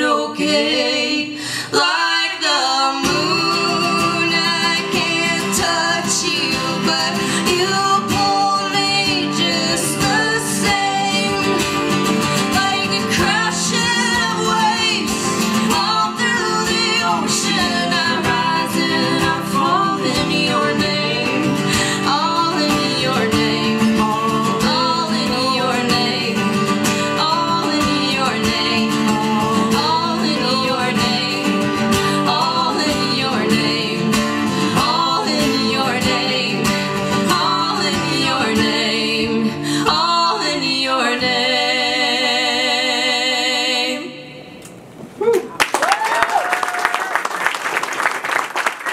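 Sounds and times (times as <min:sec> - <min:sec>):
woman singing slow song: 0:00.0 - 0:44.6
guitar accompaniment: 0:03.0 - 0:41.7.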